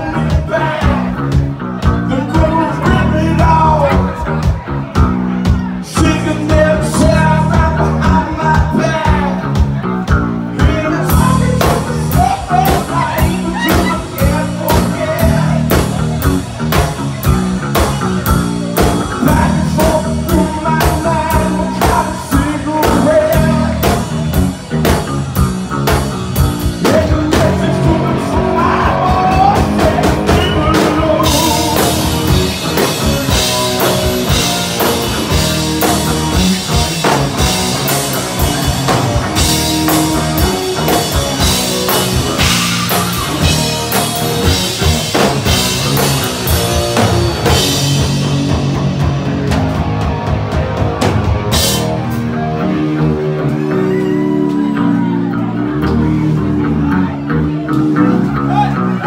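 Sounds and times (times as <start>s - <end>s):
person singing: 0.0s - 4.6s, 5.5s - 16.3s, 18.8s - 24.4s, 26.6s - 46.2s
drum kit beat: 0.0s - 59.0s
electric guitar: 0.0s - 59.0s.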